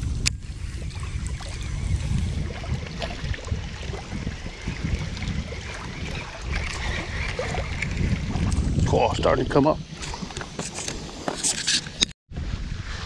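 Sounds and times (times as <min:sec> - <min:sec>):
wind buffeting microphone: 0:00.0 - 0:11.3.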